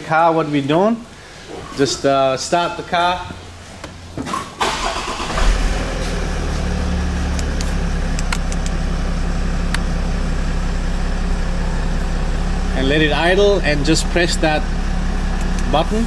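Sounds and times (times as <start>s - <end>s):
car engine starting and idling: 2.1s - 16.0s
sharp clicks: 7.4s - 8.8s.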